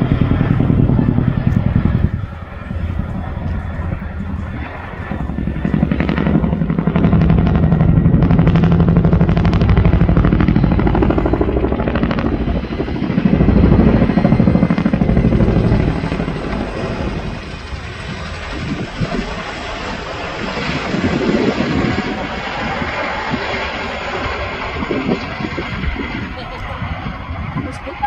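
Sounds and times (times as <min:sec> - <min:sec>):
helicopter rotor blade slap: 0:00.0 - 0:28.0
low hum: 0:00.0 - 0:28.0.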